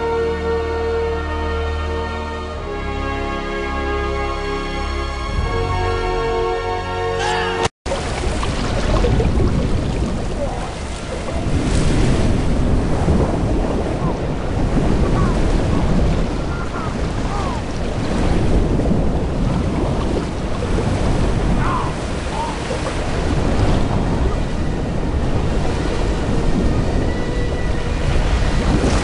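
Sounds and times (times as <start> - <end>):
churning water rushing: 7.2 - 29.0.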